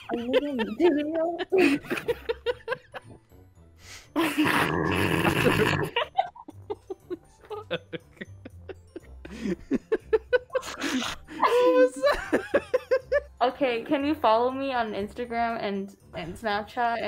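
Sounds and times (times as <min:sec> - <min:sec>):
person laughing breathily: 0:05.3 - 0:11.7.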